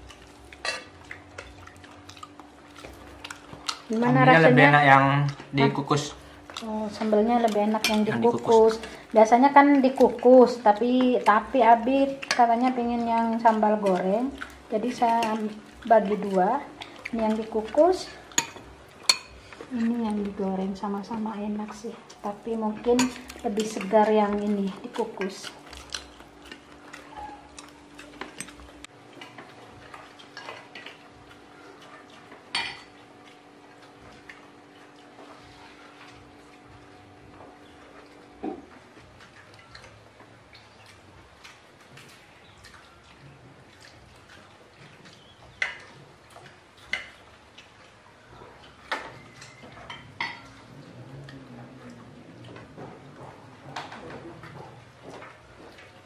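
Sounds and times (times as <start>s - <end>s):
faint steady hum: 0.0s - 56.0s
dishes and spoons clinking: 18.3s - 19.4s, 32.5s - 32.9s.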